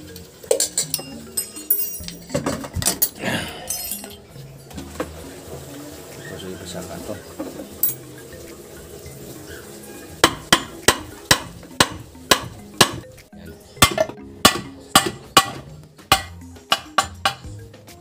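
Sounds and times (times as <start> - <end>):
hammer striking steel: 10.2 - 13.0, 13.8 - 17.5.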